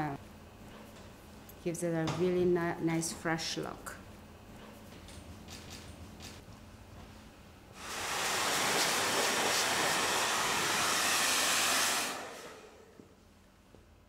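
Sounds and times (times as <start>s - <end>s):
hair dryer blowing: 7.8s - 13.0s.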